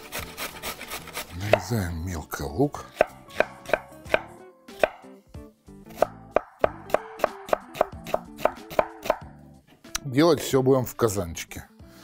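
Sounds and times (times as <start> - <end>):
soft background music: 0.0 - 12.0
knife chopping on wooden board: 0.1 - 1.8, 2.9 - 5.1, 5.9 - 9.3.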